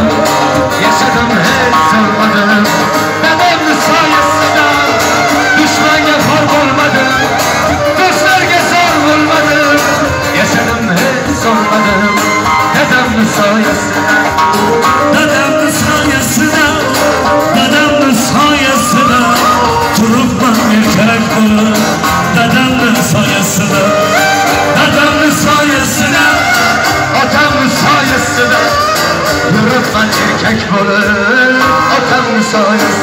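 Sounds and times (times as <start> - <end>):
acoustic guitar strumming: 0.0 - 33.0
man singing: 0.0 - 33.0.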